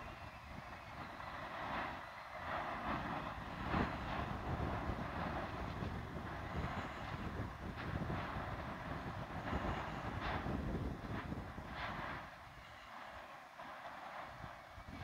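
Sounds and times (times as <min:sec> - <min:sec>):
lava fountaining and spattering: 0:00.0 - 0:15.0.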